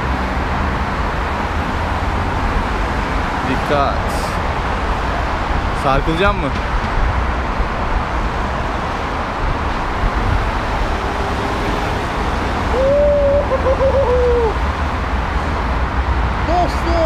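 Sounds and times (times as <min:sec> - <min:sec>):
road traffic noise: 0:00.0 - 0:17.0.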